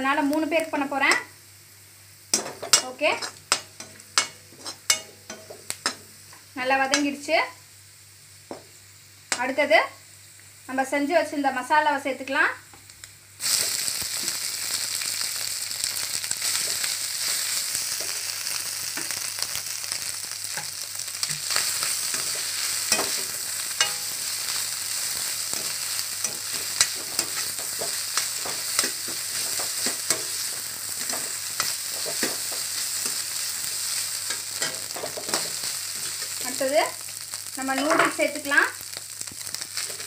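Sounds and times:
food sizzling in hot oil: 0.0 - 40.0
spatula scraping a pan: 2.4 - 6.0, 20.5 - 36.8.

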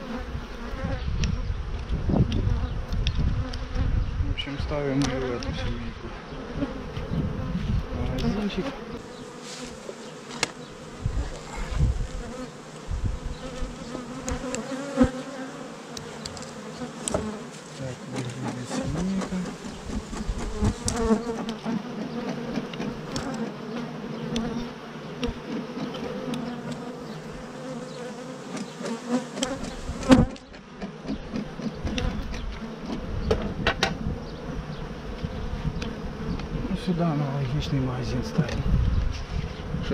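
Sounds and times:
honeybees buzzing: 0.0 - 39.9
knocks and clicks of wooden hive: 10.2 - 10.6, 15.9 - 17.4, 18.0 - 23.6, 25.2 - 26.9, 28.5 - 34.0.

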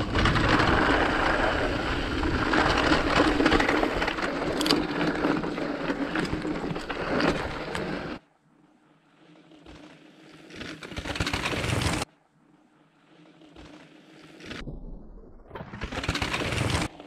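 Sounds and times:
bike clattering and rattling: 0.0 - 8.2, 9.7 - 12.1, 15.8 - 17.0
bike tyres crunching over stones: 0.0 - 8.2.

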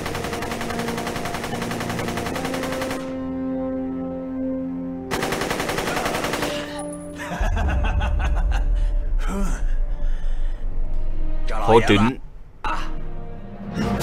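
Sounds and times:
machine gun firing bursts: 0.0 - 3.3, 5.1 - 6.8.

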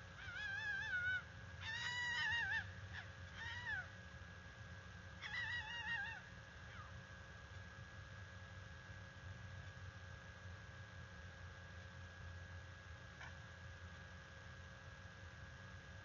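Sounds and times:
fox screaming: 0.2 - 3.9, 5.2 - 6.9
fox yelping: 0.2 - 3.9, 5.2 - 6.9.

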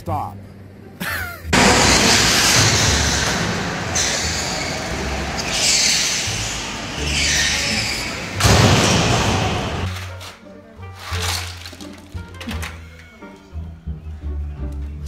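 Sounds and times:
go-kart motors and tyres: 1.5 - 9.9
hissing sweeps of passing karts: 1.6 - 9.9.

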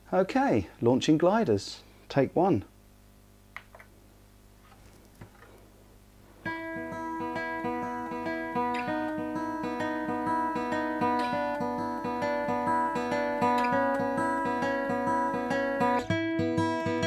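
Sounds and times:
acoustic guitar picked melody: 6.4 - 17.0.

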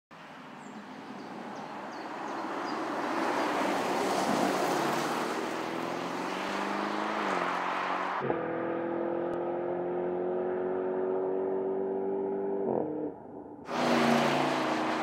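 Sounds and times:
car engine accelerating: 5.6 - 15.0.

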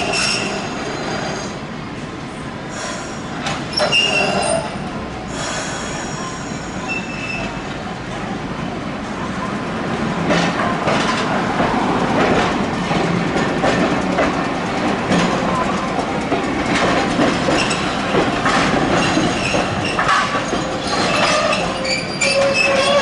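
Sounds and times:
wheels squealing: 0.0 - 1.6, 3.7 - 4.8, 17.3 - 23.0
streetcar running on rails: 0.0 - 23.0.

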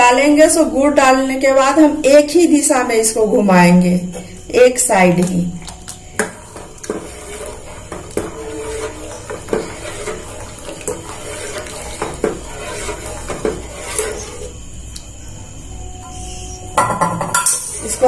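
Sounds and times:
spoon scraping and clinking pot: 5.6 - 14.5, 17.3 - 18.0.

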